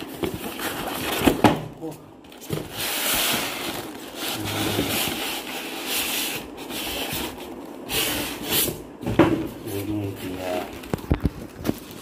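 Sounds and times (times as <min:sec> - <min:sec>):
packaging rustling and rubbing: 0:00.0 - 0:12.0.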